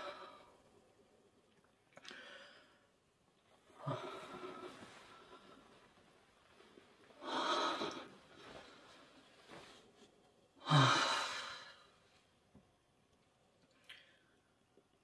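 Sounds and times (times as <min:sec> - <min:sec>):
man sighing in sleep: 0:10.6 - 0:11.8.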